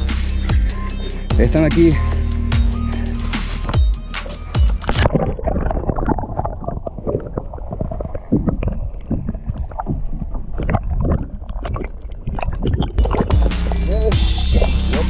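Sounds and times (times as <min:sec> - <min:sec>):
water gurgling underwater: 0:04.8 - 0:13.5.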